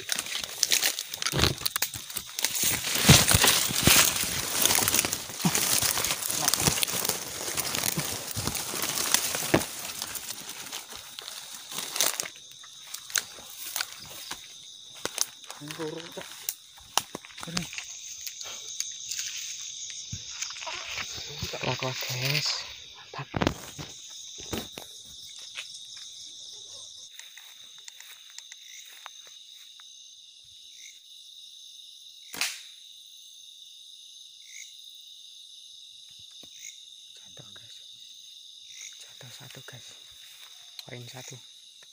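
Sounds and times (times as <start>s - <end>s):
dry grass and leaves rustling: 0.0s - 26.3s, 27.0s - 29.7s, 39.5s - 41.4s
insect trill: 0.0s - 41.9s
wings flapping: 2.1s - 12.3s.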